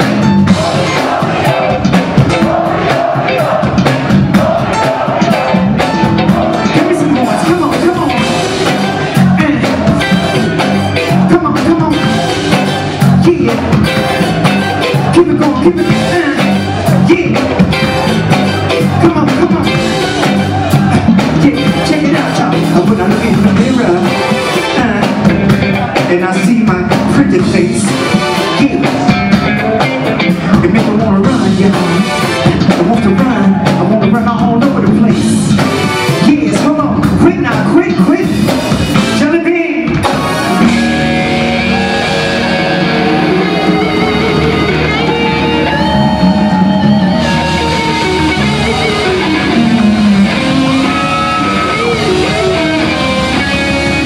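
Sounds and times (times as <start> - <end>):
live funk band playing: 0.0 - 54.0
lead singer's voice: 0.5 - 38.5.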